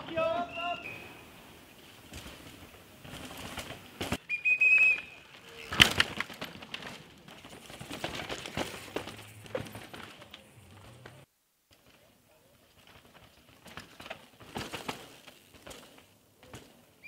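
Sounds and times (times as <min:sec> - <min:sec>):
mountain bike clattering: 0:00.0 - 0:17.0
shrill whistle: 0:00.4 - 0:01.2, 0:04.3 - 0:05.2.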